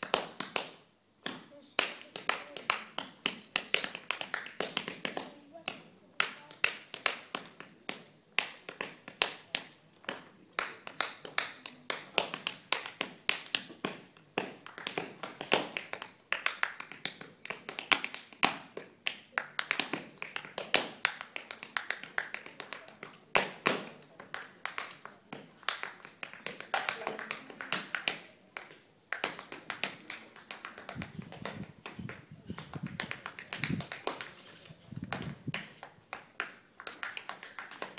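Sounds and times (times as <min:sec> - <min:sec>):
tap shoes on hard floor: 0:23.0 - 0:37.9.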